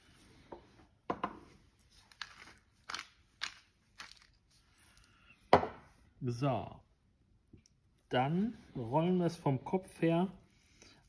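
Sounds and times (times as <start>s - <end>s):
spice mill grinding crunches: 2.0s - 4.4s.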